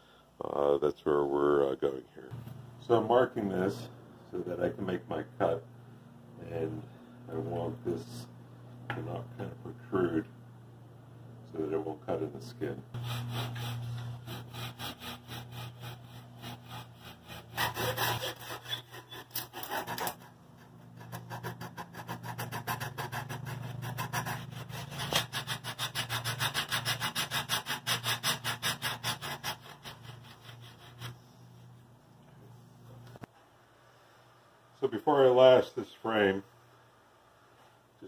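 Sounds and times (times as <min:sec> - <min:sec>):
hand saw cutting wood: 0:13.0 - 0:31.2.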